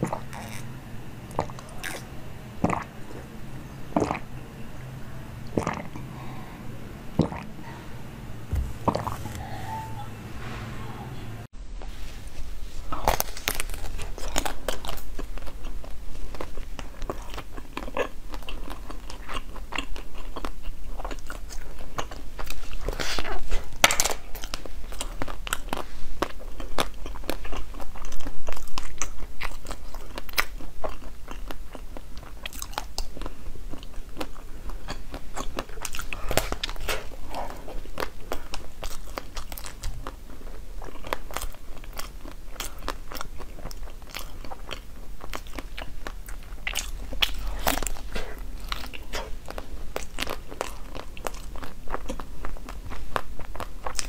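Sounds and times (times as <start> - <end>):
crunchy pastry chewing: 0.0 - 4.3, 12.8 - 54.0.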